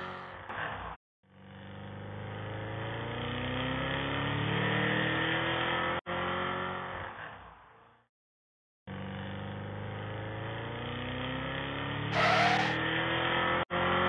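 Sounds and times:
car engine accelerating: 0:09.2 - 0:14.0.

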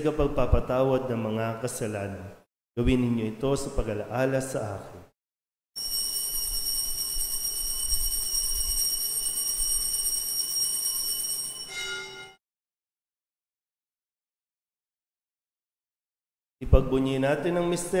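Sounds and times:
high altar bells ringing: 0:05.8 - 0:12.4
lower bell tone: 0:05.8 - 0:12.4.

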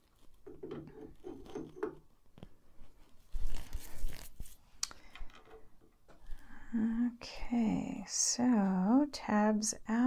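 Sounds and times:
metal rubbing and scraping: 0:00.0 - 0:02.0
rustling scrape: 0:02.4 - 0:04.7.

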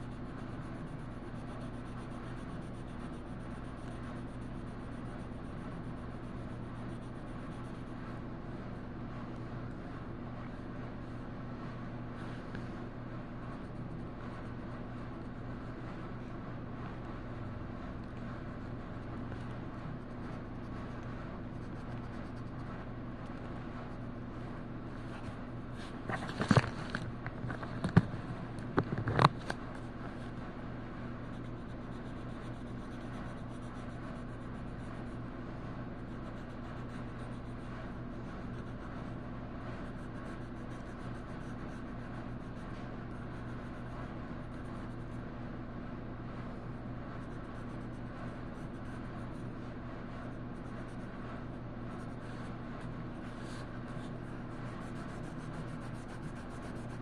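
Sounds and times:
steady low hum: 0:00.0 - 0:57.0
colouring implement rubbing on paper: 0:52.0 - 0:57.0.

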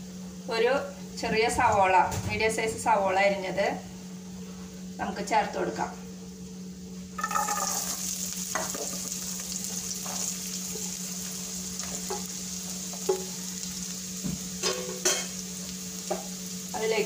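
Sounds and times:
onions sizzling in oil: 0:06.3 - 0:17.0.

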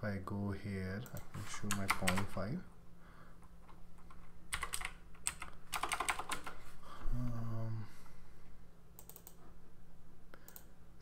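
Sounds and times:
keyboard typing: 0:01.0 - 0:02.4, 0:03.5 - 0:06.6, 0:09.0 - 0:09.4.

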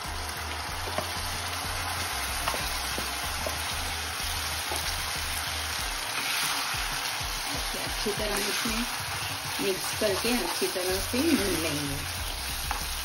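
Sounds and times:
hot oil sizzling: 0:00.0 - 0:13.0.

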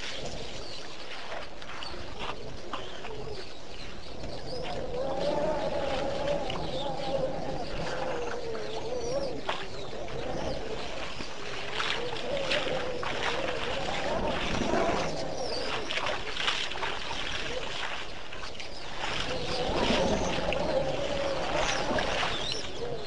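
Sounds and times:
elephants splashing water: 0:00.0 - 0:23.0
wavering drone: 0:04.1 - 0:17.9.

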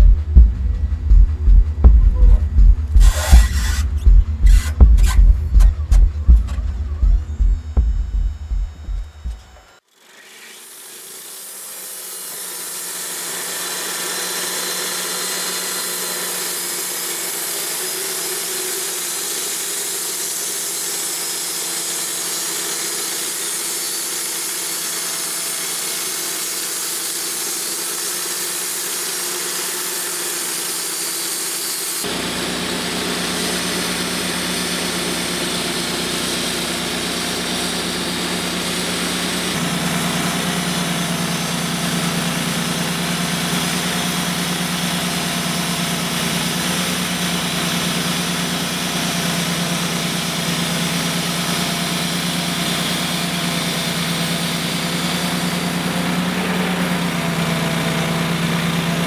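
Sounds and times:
engine hum: 0:00.0 - 0:09.8, 0:32.0 - 0:59.0
bandsaw blade cutting log: 0:02.3 - 0:59.0.

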